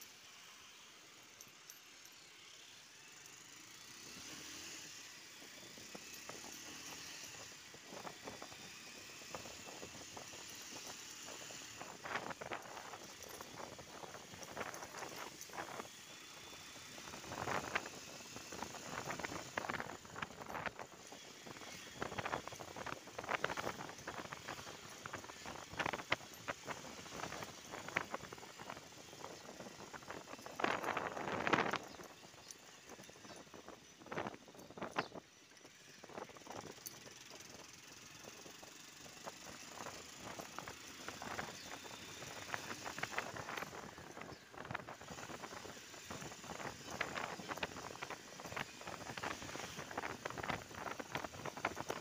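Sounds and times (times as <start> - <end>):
road noise hiss: 0.0 - 33.0
crackles and rattles: 4.2 - 52.0.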